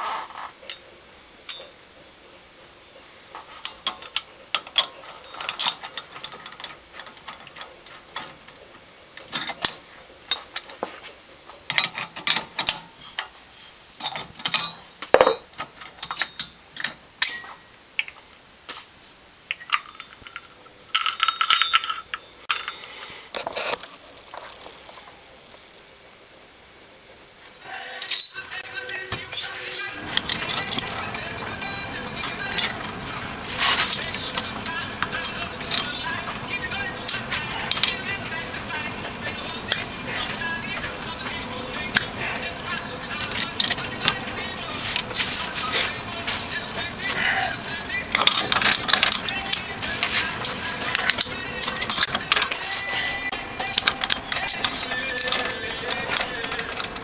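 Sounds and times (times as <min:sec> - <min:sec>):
spanner clinking on metal: 0:03.6 - 0:08.6, 0:09.2 - 0:10.7, 0:11.7 - 0:13.3, 0:14.0 - 0:18.1, 0:19.5 - 0:23.2, 0:28.0 - 0:28.6, 0:29.4 - 0:57.0.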